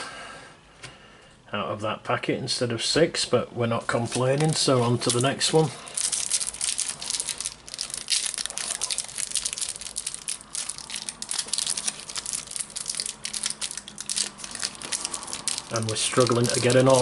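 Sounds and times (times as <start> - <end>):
foil packet crinkling: 4.0 - 17.0.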